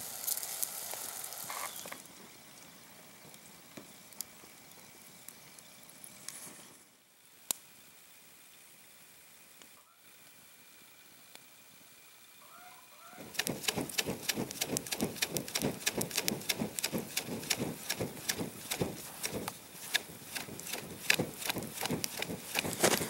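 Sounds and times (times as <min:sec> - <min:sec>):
campfire crackling and popping: 0:00.0 - 0:06.8, 0:07.4 - 0:07.7, 0:13.2 - 0:23.0.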